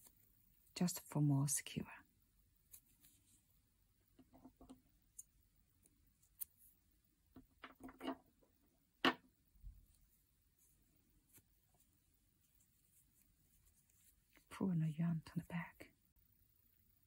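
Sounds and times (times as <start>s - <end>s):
yarn rustling: 2.6s - 3.6s, 9.7s - 14.6s.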